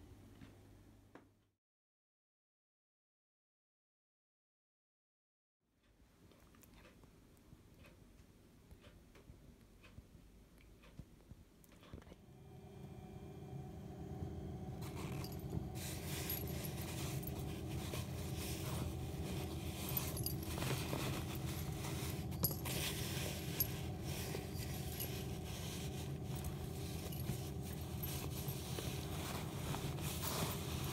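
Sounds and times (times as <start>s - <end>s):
low hum: 12.2s - 30.9s
fabric bedding rustling and scraping: 14.8s - 30.9s.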